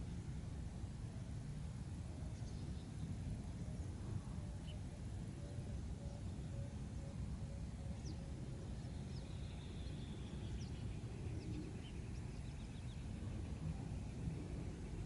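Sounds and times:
wind rumbling on microphone: 9.9 - 15.0.

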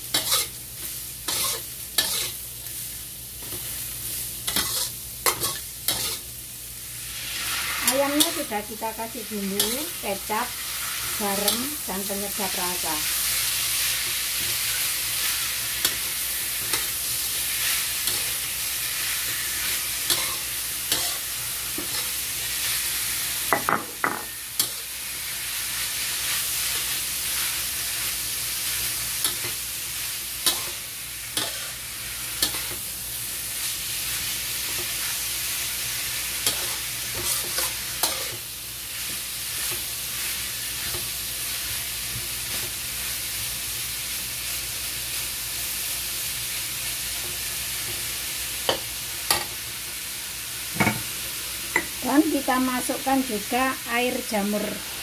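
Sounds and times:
food sizzling in a wok: 0.0 - 55.0
spatula scraping and tapping pan: 0.1 - 2.4, 4.5 - 6.2.

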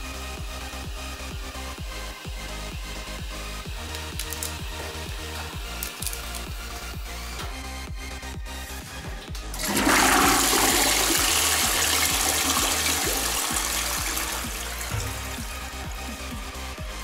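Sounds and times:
toilet flushing: 9.4 - 17.0.

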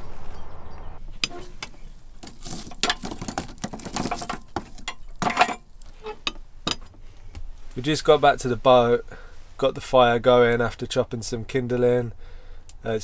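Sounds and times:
wood fire crackling: 1.0 - 10.3
logs knocked with stick: 1.2 - 5.6.

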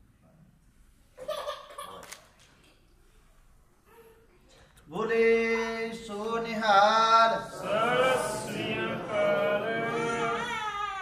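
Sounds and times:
voices singing a chant: 6.2 - 10.8.

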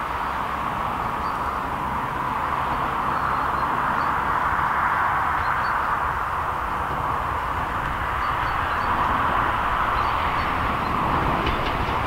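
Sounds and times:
steam locomotive rushing: 7.7 - 12.0.

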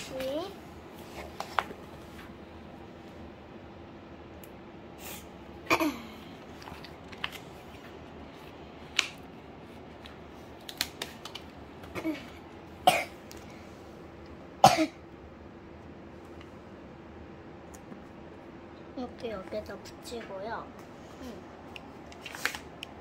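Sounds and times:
paper crinkling: 6.4 - 11.9, 21.9 - 23.0.

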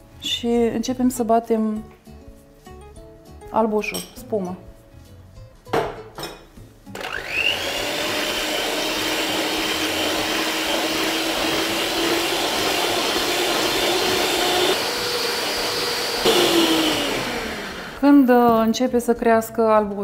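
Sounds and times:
electric mixer whirring: 6.9 - 18.2
beaters whisking in metal bowl: 7.1 - 17.6.

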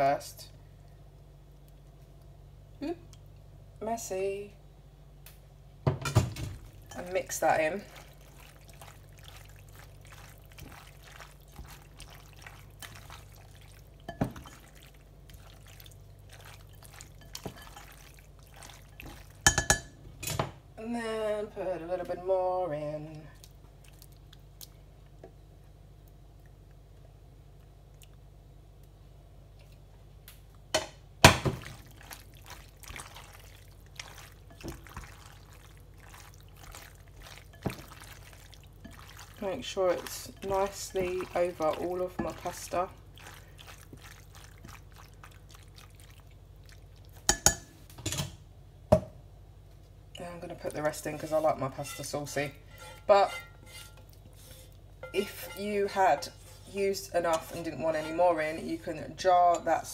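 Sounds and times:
low steady hum: 0.0 - 59.9
squelching sauce stirring: 6.5 - 19.9, 23.0 - 24.9, 31.3 - 47.7, 50.2 - 59.9.

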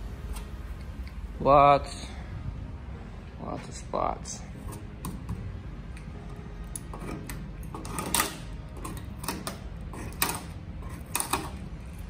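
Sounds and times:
low steady rumble: 0.0 - 12.0
fingers scraping paint on metal: 6.7 - 11.6.

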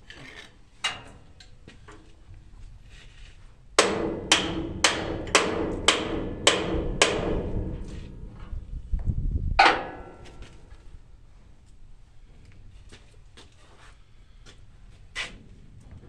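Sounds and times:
low rumble: 4.7 - 11.3.

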